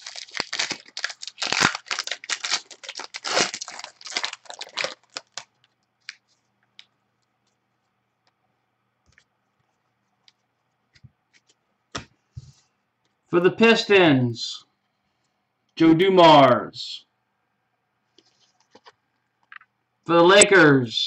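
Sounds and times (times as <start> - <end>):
foil wrapper tearing and crinkling: 0.0 - 6.2.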